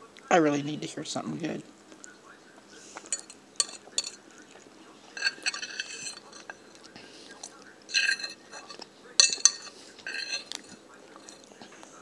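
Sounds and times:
chewing: 1.9 - 12.0
fork scraping a plate: 2.8 - 11.8.

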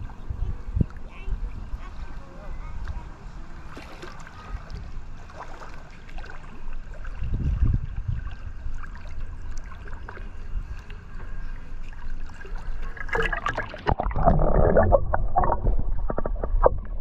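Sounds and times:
sea water lapping at shore: 0.0 - 16.7
low rumble: 12.6 - 17.0.

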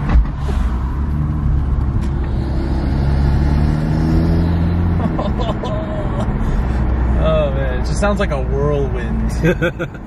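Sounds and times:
car engine accelerating: 0.0 - 7.9.

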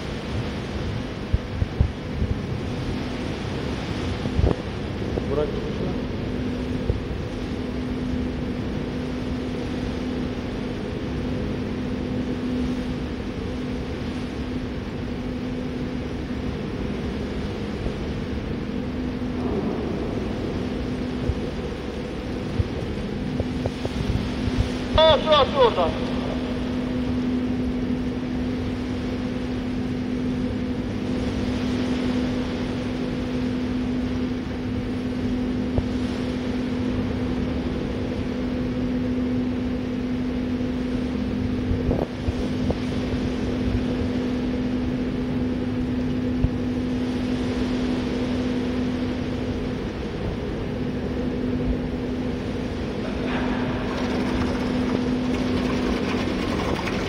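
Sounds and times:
water rushing and swirling: 0.0 - 36.9, 52.0 - 57.0
machinery hum: 0.0 - 57.0.

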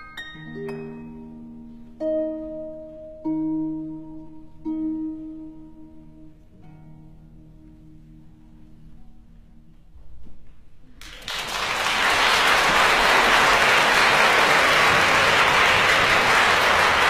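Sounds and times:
audience applause: 11.0 - 17.0.

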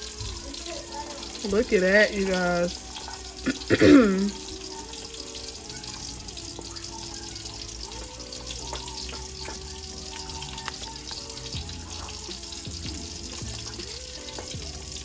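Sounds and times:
background music: 0.0 - 15.0
spatula squelching mashed potatoes: 4.3 - 15.0.

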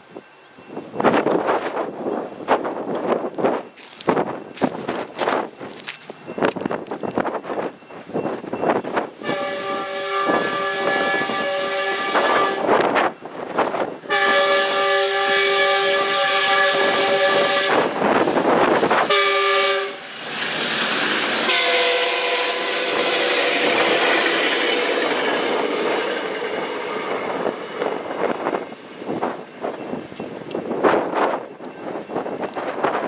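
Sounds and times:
locomotive air horn: 9.2 - 12.8, 14.1 - 18.0, 19.1 - 20.1, 21.4 - 27.6
train wheels clattering: 16.8 - 33.0.

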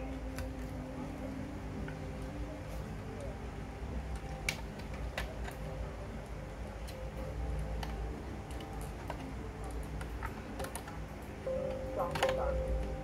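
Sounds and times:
low background hum: 0.0 - 13.0.

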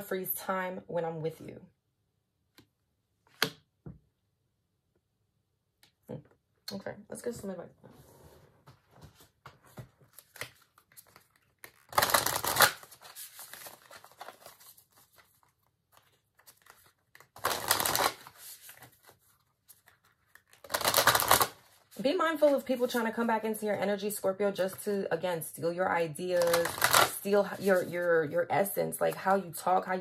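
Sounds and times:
cards being shuffled: 8.9 - 21.9, 26.4 - 28.0.

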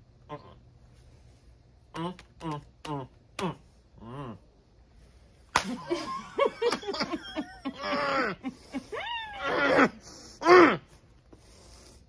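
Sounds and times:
tortilla slapping a face: 5.5 - 6.0
stifled laughter: 5.6 - 9.9.

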